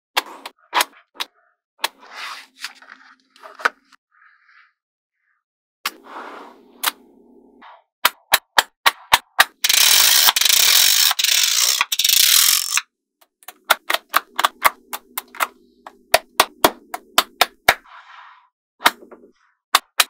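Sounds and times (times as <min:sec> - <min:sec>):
magnetic balls clicking: 0:08.3 - 0:17.8.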